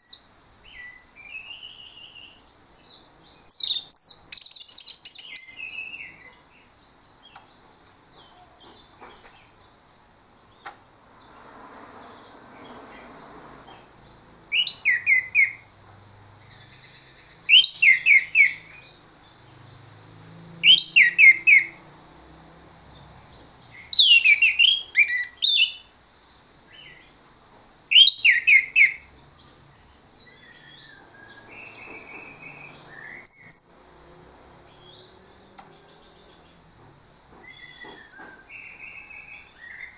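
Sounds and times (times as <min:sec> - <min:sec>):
thrush singing: 0:16.4 - 0:25.8.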